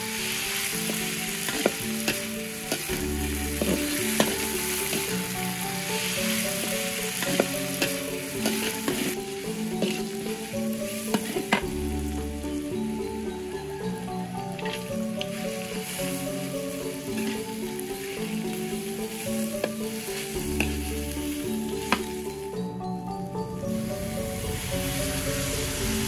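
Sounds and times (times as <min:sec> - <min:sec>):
metal spatula scraping wok: 0:00.0 - 0:11.8, 0:14.5 - 0:22.4
vegetables sizzling in a wok: 0:00.0 - 0:22.8, 0:23.4 - 0:26.0.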